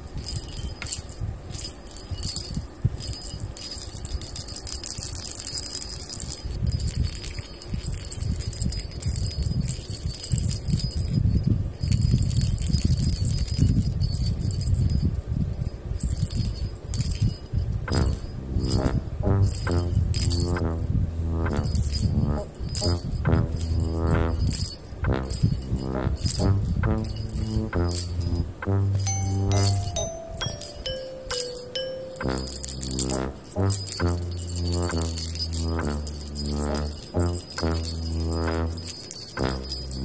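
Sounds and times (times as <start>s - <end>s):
bell in toy ball jingling: 0.0s - 40.0s
low rumble: 17.9s - 29.0s
cheerful background music: 28.7s - 34.2s.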